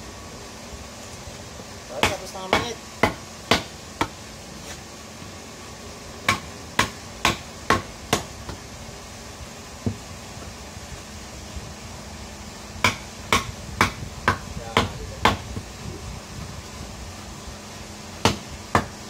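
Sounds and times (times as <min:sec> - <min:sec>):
knife chopping into wooden beam: 0:02.0 - 0:04.2, 0:06.3 - 0:08.6, 0:12.8 - 0:15.4, 0:18.2 - 0:18.9.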